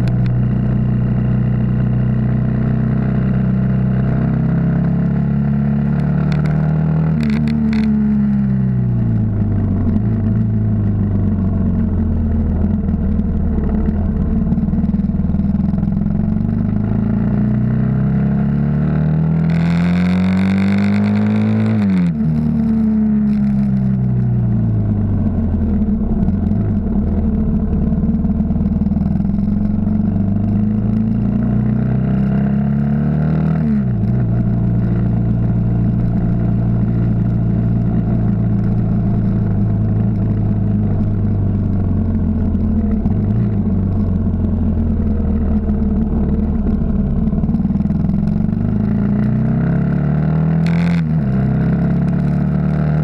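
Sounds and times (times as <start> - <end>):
motorcycle engine revving: 0.0 - 53.0
wind and road noise: 0.0 - 53.0.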